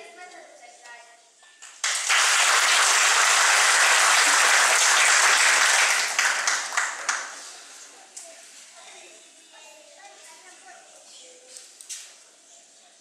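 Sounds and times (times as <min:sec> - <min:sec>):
audience applauding: 0:01.8 - 0:07.7.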